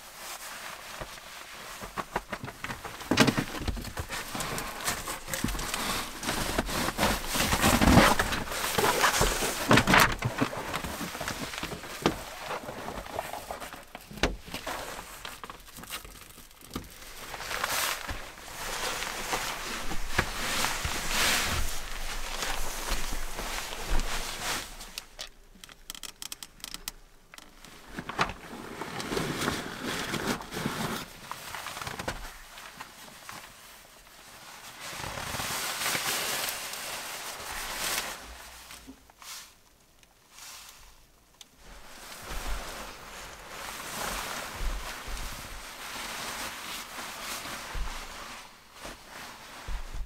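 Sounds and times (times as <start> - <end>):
sleeping bag rustling: 0.0 - 25.4, 27.5 - 39.6, 41.6 - 50.0
small clicks: 25.0 - 27.5.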